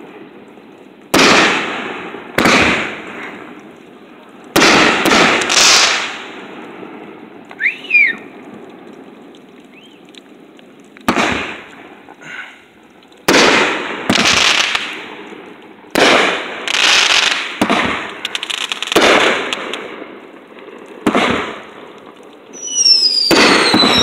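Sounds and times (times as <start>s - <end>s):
fireworks bursting: 0.0s - 24.0s
firework whistle falling: 7.5s - 8.3s, 22.5s - 24.0s.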